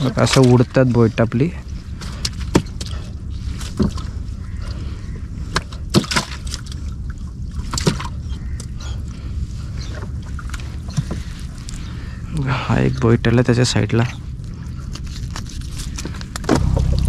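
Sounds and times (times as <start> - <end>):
low rumble of wind and water: 0.0 - 17.0
fish and net slapping hull: 1.8 - 8.8.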